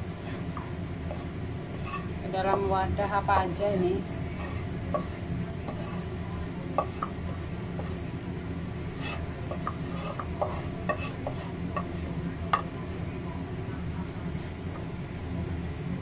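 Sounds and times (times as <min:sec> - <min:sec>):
steady low hum: 0:00.0 - 0:16.0
pestle scraping and tapping wood: 0:04.4 - 0:06.0, 0:06.8 - 0:08.0, 0:09.0 - 0:12.8.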